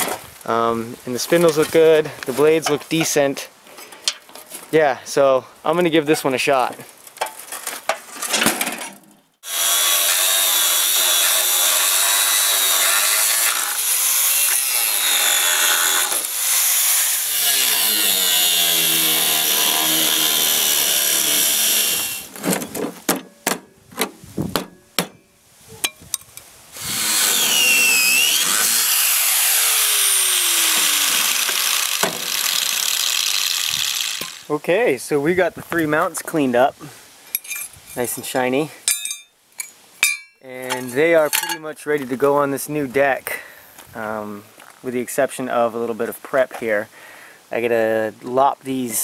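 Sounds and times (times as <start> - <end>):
angle grinder cutting metal: 9.4 - 22.3, 26.8 - 34.5.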